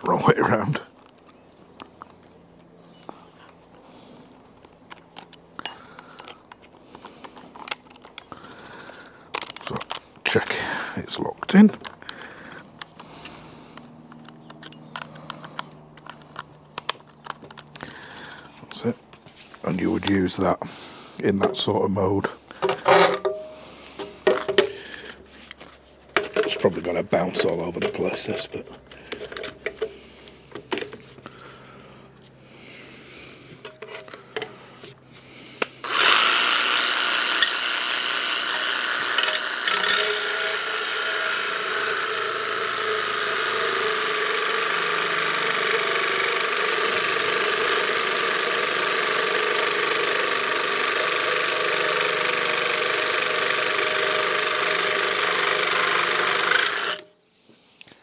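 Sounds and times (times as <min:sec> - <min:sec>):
handling clicks: 0:13.7 - 0:17.9
saw cutting metal sheet: 0:35.8 - 0:57.1.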